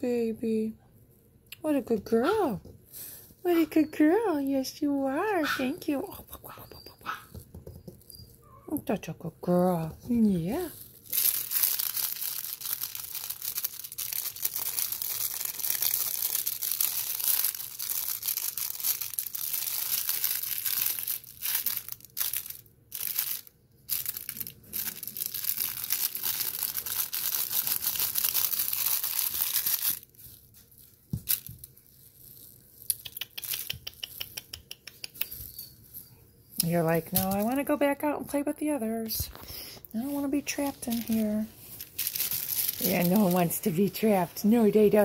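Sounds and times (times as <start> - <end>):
plastic crinkling and rustling: 10.0 - 32.9, 39.2 - 45.0.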